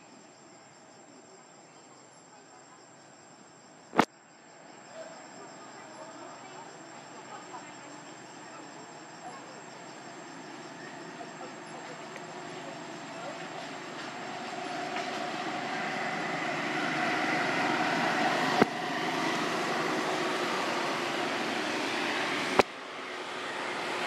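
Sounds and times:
passing motor vehicle drone: 0:13.7 - 0:24.0.

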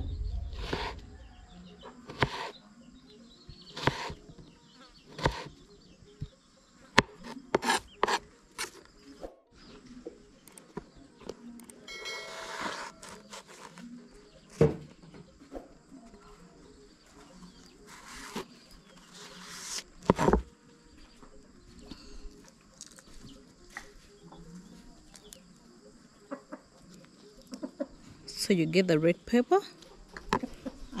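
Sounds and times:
knife slicing on cutting board: 0:03.8 - 0:04.2.

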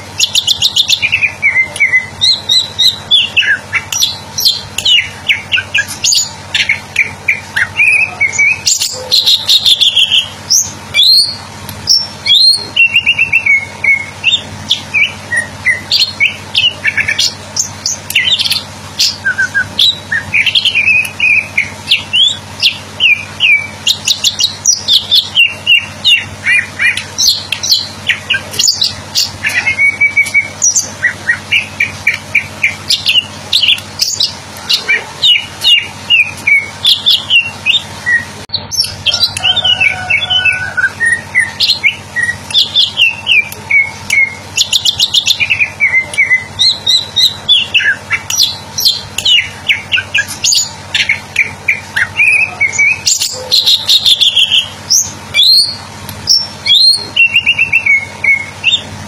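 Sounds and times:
bird singing chirps and whistles: 0:00.0 - 0:58.9.

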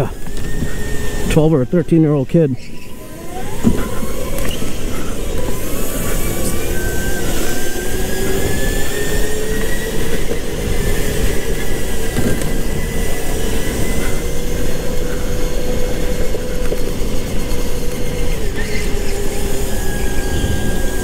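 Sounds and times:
go-kart motor whine: 0:00.0 - 0:21.0
tyres and wind rumble: 0:00.0 - 0:21.0.

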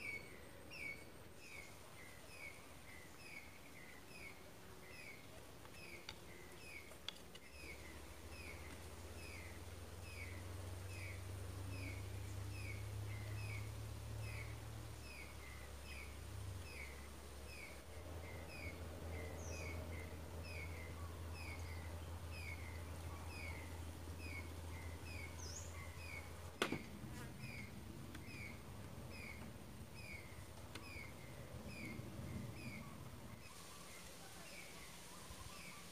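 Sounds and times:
bird chirping: 0:00.0 - 0:26.4, 0:27.4 - 0:35.9
steady low hum: 0:00.0 - 0:35.9
sharp knock: 0:26.6 - 0:26.9.

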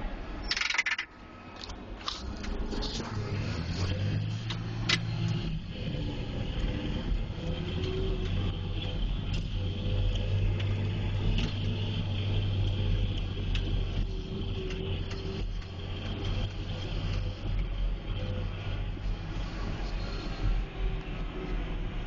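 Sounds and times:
diesel engine running under load: 0:00.0 - 0:22.0
short clicks and rattles: 0:00.4 - 0:03.0
plow pushing snow and slush: 0:02.0 - 0:22.0.

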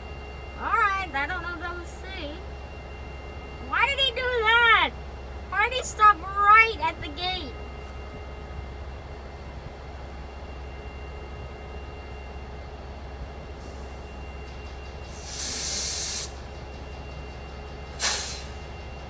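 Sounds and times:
idling locomotives drone: 0:00.0 - 0:19.0
train air brakes hissing: 0:15.0 - 0:16.6, 0:17.9 - 0:18.8.

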